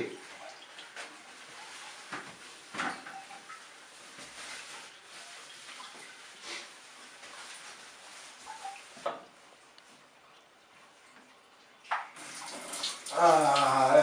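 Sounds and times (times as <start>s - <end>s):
rustling: 0.2s - 10.0s.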